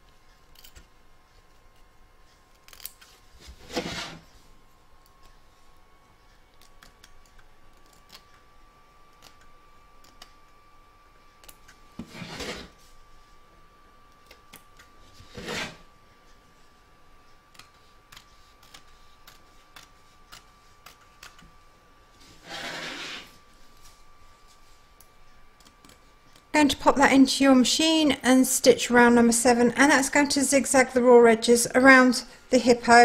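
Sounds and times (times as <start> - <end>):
scissors snipping fabric: 6.6 - 8.4, 17.5 - 21.4.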